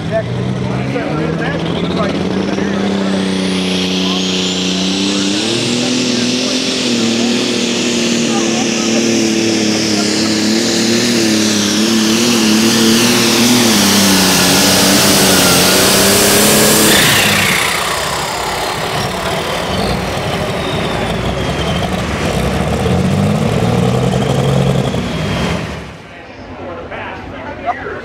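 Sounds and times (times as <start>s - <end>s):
tractor engine at full throttle: 0.0s - 26.2s
turbo whistle: 19.6s - 22.1s.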